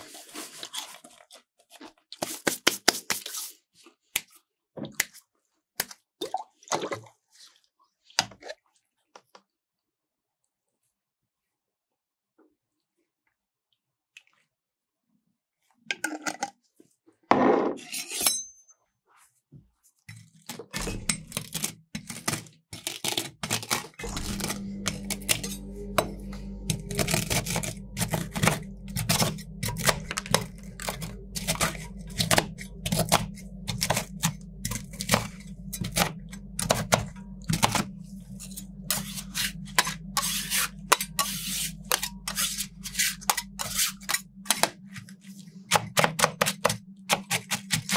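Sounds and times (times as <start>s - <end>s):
steady low hum: 24.0s - 47.9s.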